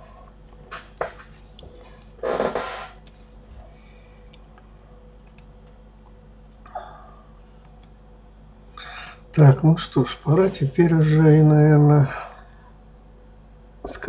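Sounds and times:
faint electrical whine: 0.0s - 14.0s
computer mouse clicks: 5.2s - 5.5s, 7.6s - 8.0s
burst of breath noise: 8.8s - 9.2s.

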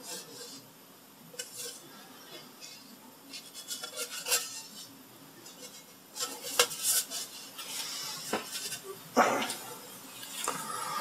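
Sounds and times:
wood scraping and clinking on metal: 1.4s - 8.9s.

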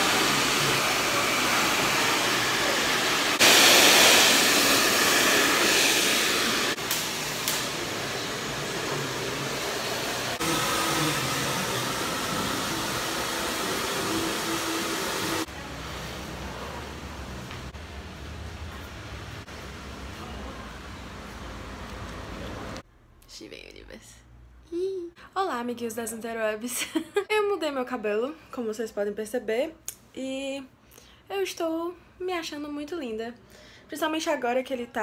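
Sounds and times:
hair dryer blowing: 0.0s - 17.7s.

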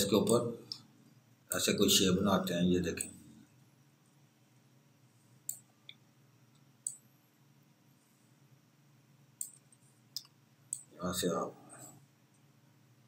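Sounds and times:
faint room hum: 0.0s - 13.0s
computer mouse clicking: 5.4s - 6.0s, 6.6s - 7.0s, 9.4s - 10.9s.

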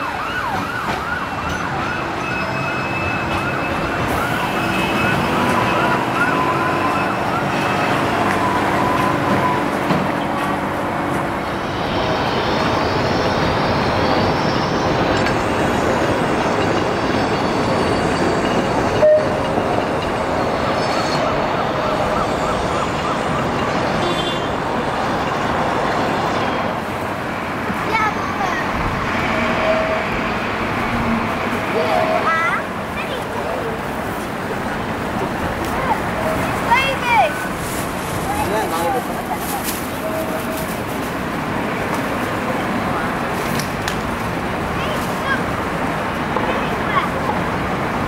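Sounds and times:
emergency siren yelping: 0.0s - 10.0s, 20.2s - 24.0s
traffic noise: 0.0s - 48.0s.

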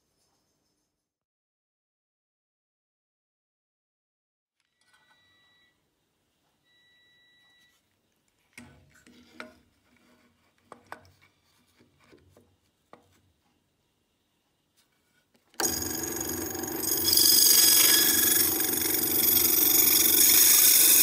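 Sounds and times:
drill press saw blade whine: 15.6s - 21.0s.

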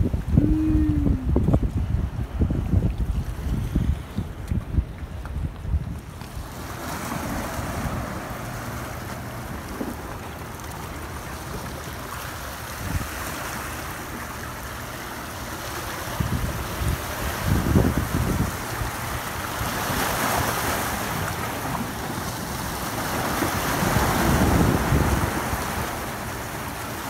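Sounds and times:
wind rumbling on microphone: 0.0s - 11.8s, 12.4s - 14.5s, 15.6s - 27.0s
waves splashing against rocks: 0.0s - 27.0s.

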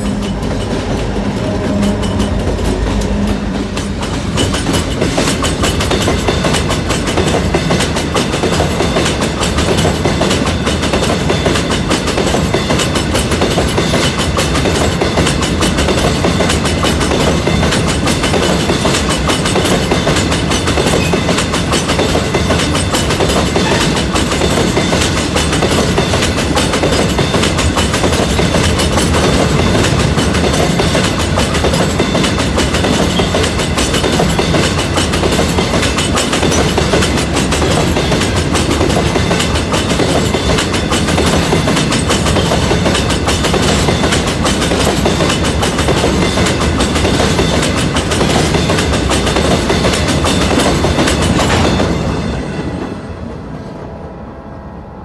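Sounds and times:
train wheels clicking over rails: 0.0s - 53.4s
train rumble: 0.0s - 55.0s.

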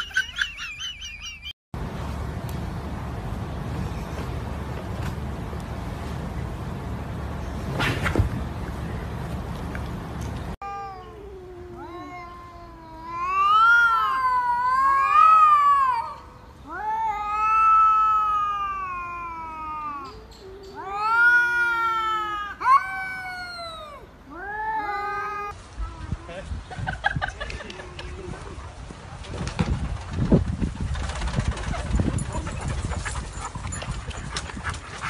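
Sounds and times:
cats yowling: 10.6s - 25.6s.

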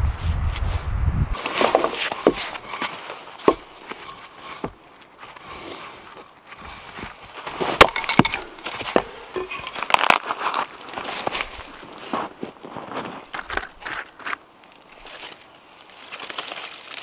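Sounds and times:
wood scraping: 1.3s - 15.4s
wooden branches snapping: 1.4s - 4.2s, 9.7s - 11.9s, 12.9s - 17.0s.

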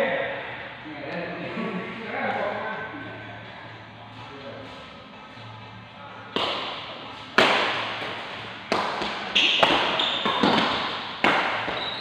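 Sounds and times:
rackets hitting shuttlecock: 6.3s - 12.0s
shoe squeaks on court floor: 9.3s - 10.8s, 11.6s - 12.0s.

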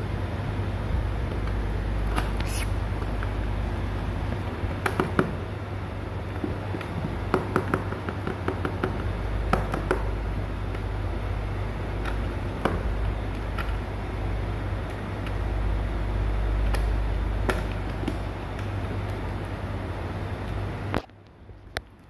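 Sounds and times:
low background hum: 0.0s - 22.0s
kitten claws tapping on plastic: 4.3s - 5.4s, 6.4s - 10.2s.

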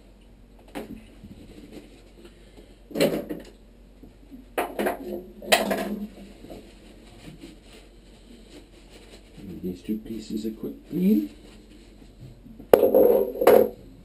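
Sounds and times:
hard items clattering and knocking: 2.9s - 3.6s, 4.4s - 6.6s, 12.6s - 13.8s.

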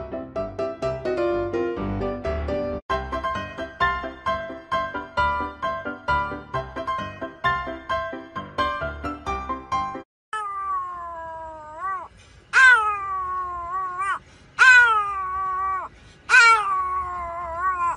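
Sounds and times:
plinking keyboard music: 0.0s - 10.0s
dog howling: 10.4s - 17.9s.

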